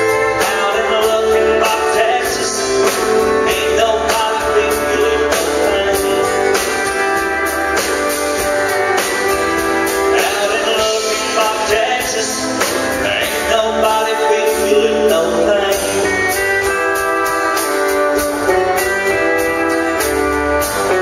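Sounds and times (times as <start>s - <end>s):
man singing: 0.0s - 7.2s, 9.7s - 17.6s
acoustic guitar: 0.0s - 21.0s
drums steady beat: 0.0s - 21.0s
pedal steel guitar: 0.0s - 21.0s.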